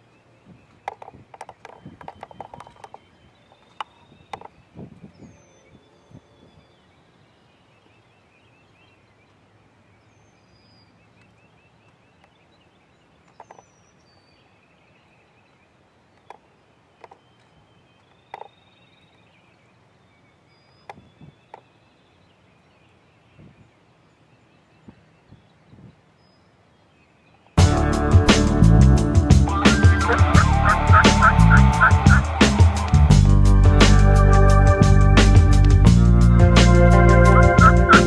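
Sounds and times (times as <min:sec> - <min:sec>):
songbird chirps and trill: 0:00.0 - 0:38.0
turkey spitting: 0:29.4 - 0:33.2, 0:36.7 - 0:38.0.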